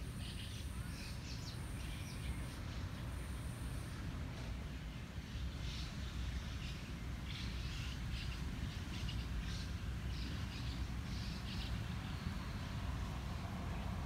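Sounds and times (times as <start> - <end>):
steady low rumble: 11.8 - 14.0.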